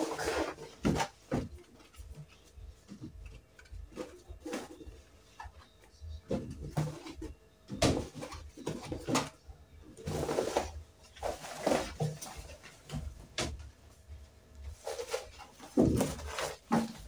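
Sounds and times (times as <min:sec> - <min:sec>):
cloth and plastic bags rustling: 0:10.0 - 0:13.3, 0:14.6 - 0:17.0.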